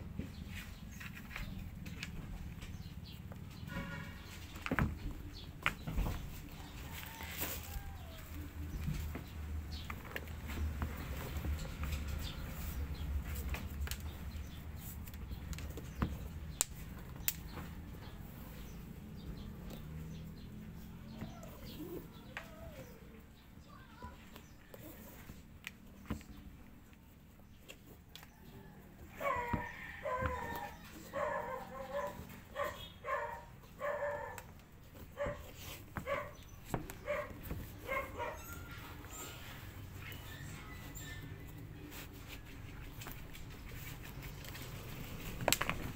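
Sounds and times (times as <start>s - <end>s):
dog barking: 31.1s - 34.5s, 35.2s - 36.4s, 37.0s - 38.6s.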